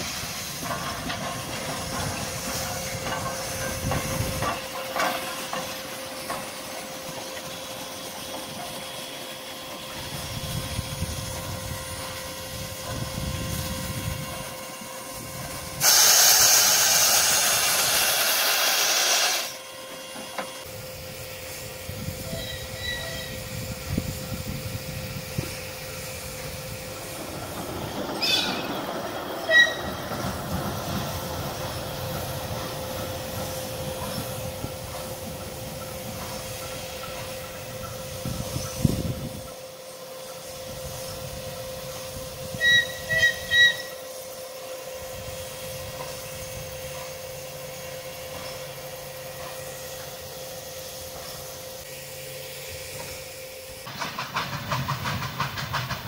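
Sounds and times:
train rolling on rails: 0.0s - 56.0s.

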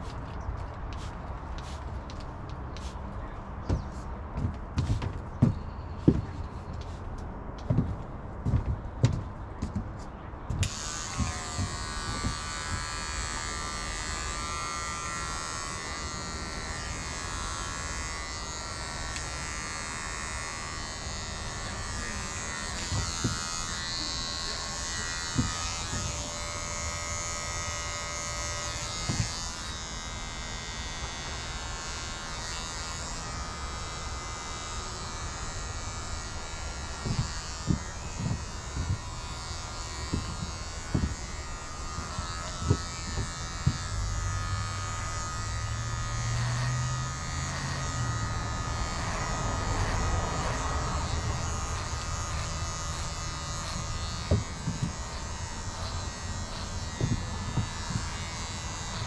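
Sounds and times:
electric hair clippers buzzing: 10.5s - 59.0s.

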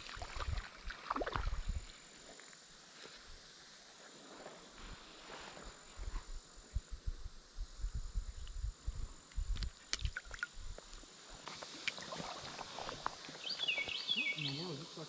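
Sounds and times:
high insect buzz: 0.0s - 15.0s
bird chirping: 13.4s - 15.0s.

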